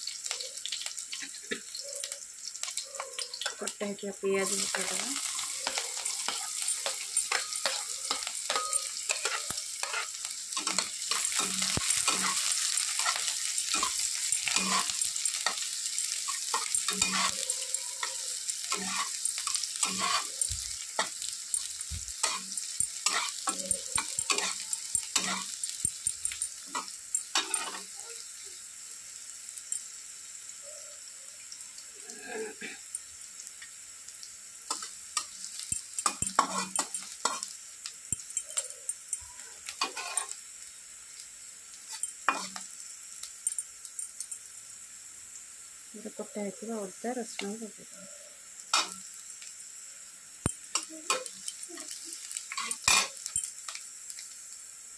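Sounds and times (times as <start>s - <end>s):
onions sizzling in hot oil: 0.0s - 54.9s
spatula scraping metal pan: 4.5s - 15.6s, 16.3s - 21.6s, 22.2s - 25.5s, 36.0s - 37.4s, 39.8s - 40.4s.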